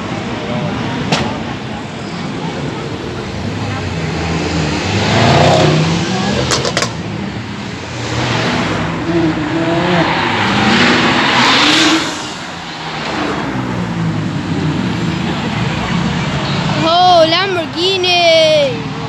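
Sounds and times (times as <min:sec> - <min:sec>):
sports cars driving past revving: 0:00.1 - 0:16.9.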